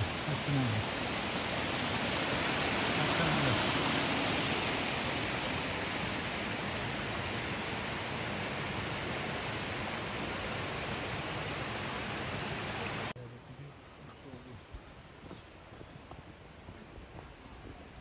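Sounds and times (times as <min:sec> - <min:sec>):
stream flowing over rocks: 0:00.0 - 0:13.2.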